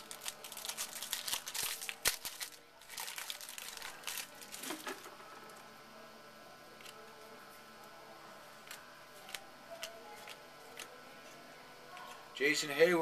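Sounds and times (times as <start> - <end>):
wrapper crinkling: 0.0 - 5.1.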